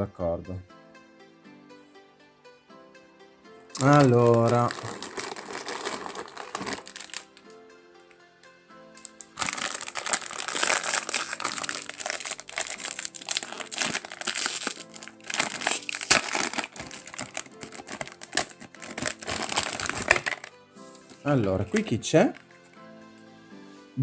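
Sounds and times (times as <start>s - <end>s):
soft background music: 0.0s - 24.0s
plastic foil bag crinkling: 3.8s - 7.4s, 9.0s - 20.5s.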